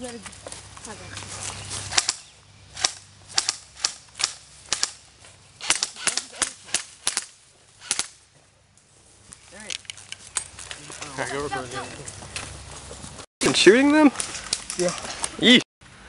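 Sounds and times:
airsoft rifle shots: 2.8 - 5.0, 5.6 - 8.2.

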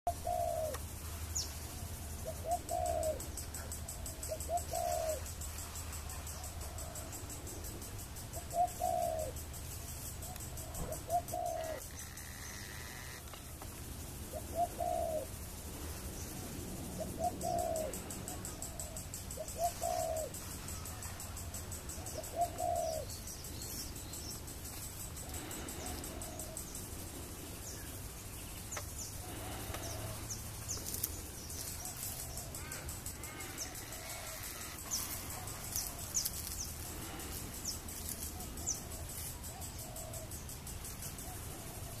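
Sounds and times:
pigeon cooing: 0.1 - 0.8, 2.2 - 5.4, 8.3 - 9.4, 10.3 - 13.2, 14.3 - 15.4, 16.9 - 21.1, 22.0 - 23.1, 25.3 - 27.5, 29.2 - 40.4
small birds chirping: 0.1 - 42.0.

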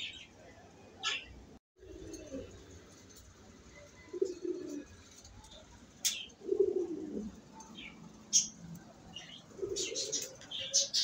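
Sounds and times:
pigeons cooing: 1.8 - 2.7, 3.8 - 5.4, 6.1 - 8.5, 9.1 - 11.0.

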